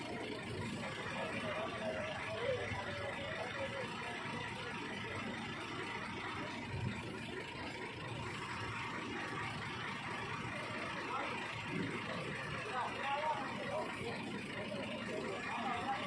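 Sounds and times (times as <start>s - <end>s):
diesel engine droning: 0.0s - 16.0s.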